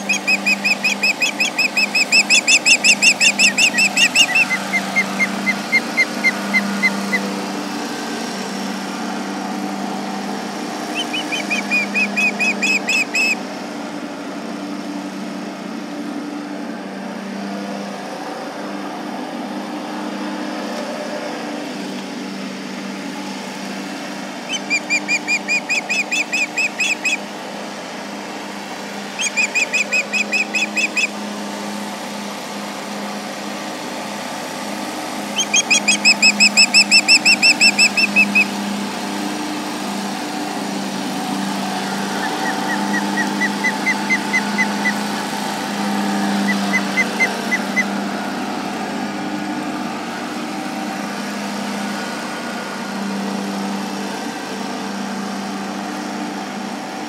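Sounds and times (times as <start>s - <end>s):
ospreys whistled alarm calls: 0.0s - 7.3s, 10.8s - 13.4s, 24.5s - 27.2s, 29.1s - 31.2s, 35.3s - 38.5s, 41.8s - 45.2s, 46.2s - 47.9s
tractor engine drone: 0.0s - 57.0s.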